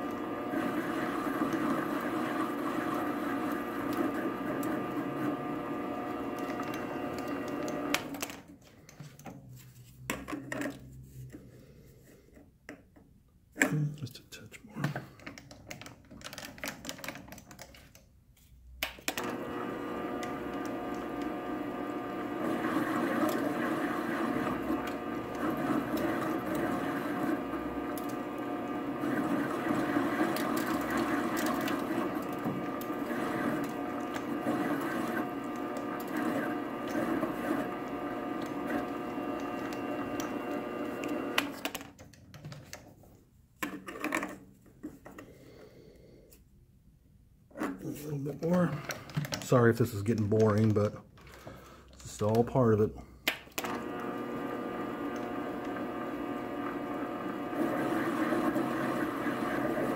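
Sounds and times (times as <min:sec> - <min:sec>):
metal lathe motor whining: 0:00.0 - 0:08.2, 0:19.2 - 0:41.6, 0:53.6 - 0:59.9.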